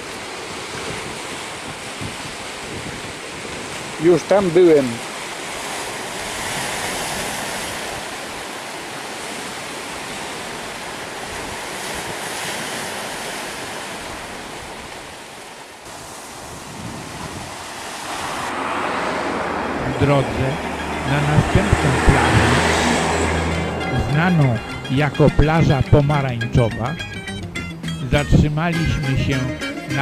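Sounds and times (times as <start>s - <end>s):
wind on microphone: 0.0s - 4.0s, 15.9s - 24.8s
sea surf washing onto beach: 0.0s - 26.1s.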